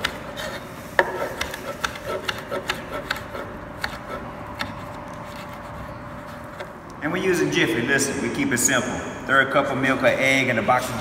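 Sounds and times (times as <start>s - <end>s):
knife chopping on wooden board: 1.0s - 4.9s.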